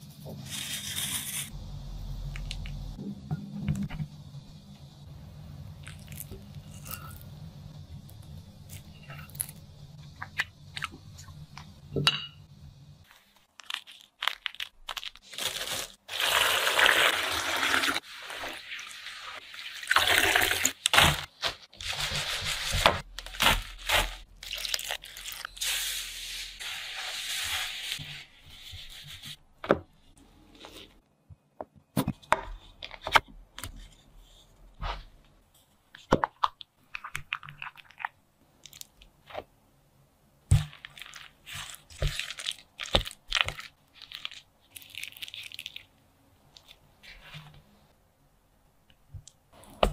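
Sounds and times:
dried petals rustling and crinkling: 0:13.0 - 0:16.1.

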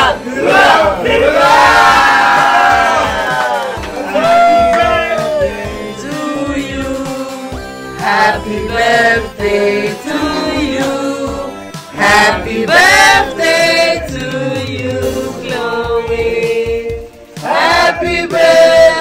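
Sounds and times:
group of people singing: 0:00.0 - 0:03.9, 0:05.0 - 0:19.0.

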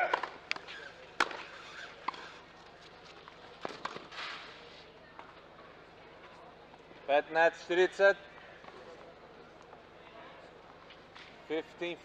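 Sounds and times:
tennis ball struck by rackets: 0:01.2 - 0:01.5.

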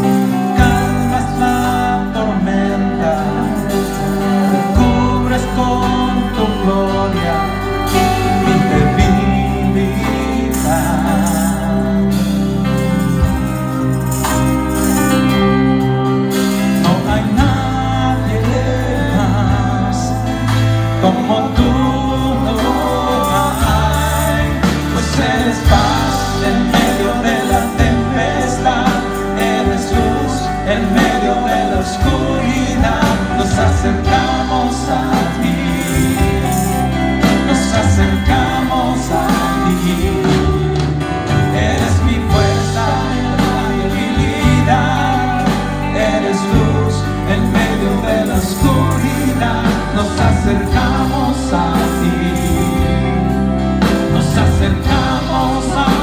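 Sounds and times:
low bass notes: 0:00.0 - 0:56.0
person singing: 0:00.0 - 0:56.0
worship band playing slow song: 0:00.0 - 0:56.0
tambourines jingling: 0:07.9 - 0:19.4, 0:20.6 - 0:40.7.

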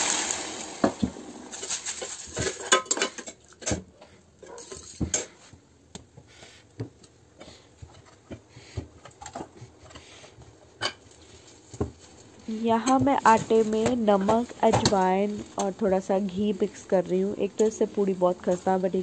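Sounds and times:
water sizzling in hot pan: 0:00.0 - 0:03.1.

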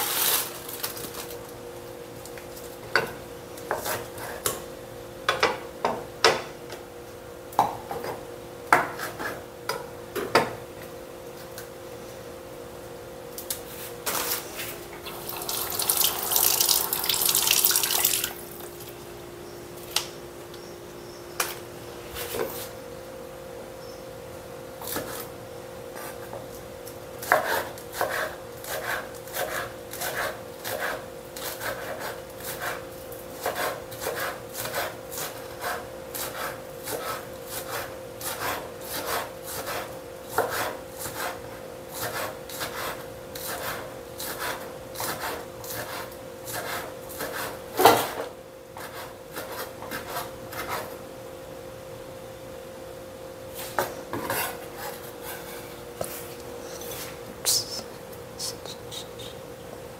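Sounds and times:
steady hum: 0:09.5 - 0:26.0
knife chopping on wooden board: 0:27.2 - 0:32.8, 0:33.4 - 0:41.4.

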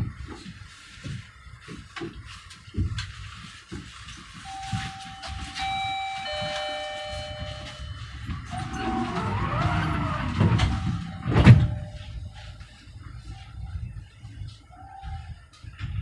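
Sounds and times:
tram rumbling: 0:04.4 - 0:13.8
electronic tones: 0:04.5 - 0:12.5
rising and falling whine: 0:07.2 - 0:12.5.

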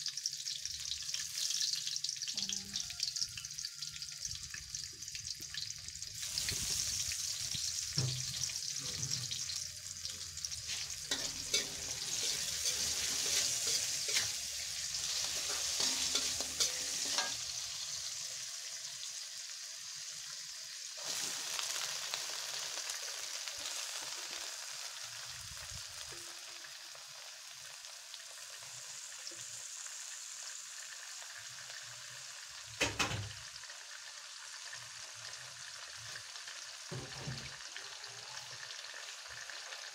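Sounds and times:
food sizzling in hot oil: 0:00.0 - 0:39.9
metal spatula scraping a wok: 0:06.2 - 0:18.1.

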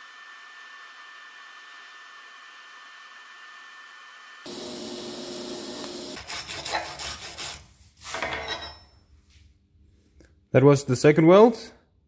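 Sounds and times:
welding arc hissing: 0:00.0 - 0:07.6
metal rubbing and scraping on table: 0:06.2 - 0:08.8.

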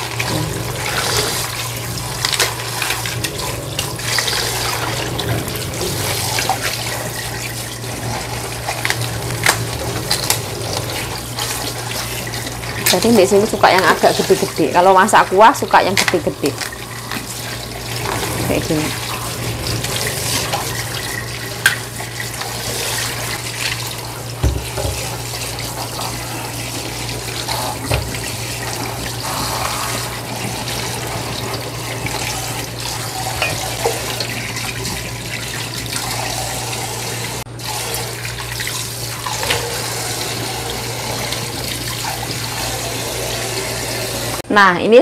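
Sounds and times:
tap running into a steel bowl: 0:24.4 - 0:25.2, 0:27.8 - 0:28.3.

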